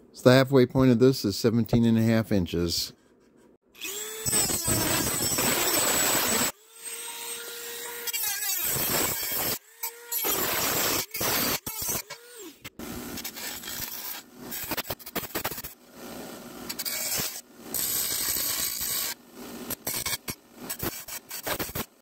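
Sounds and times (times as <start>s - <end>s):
bench grinder grinding metal: 3.8s - 15.7s, 16.7s - 21.9s
rotary tool cutting metal: 3.8s - 15.8s, 16.7s - 22.0s.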